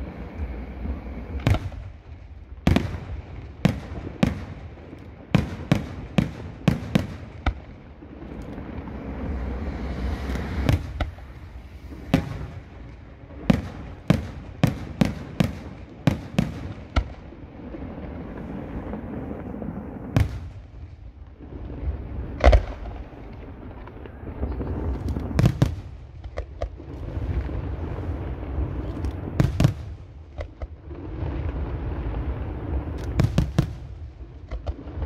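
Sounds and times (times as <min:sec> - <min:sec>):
firework hiss: 0:05.4 - 0:23.3.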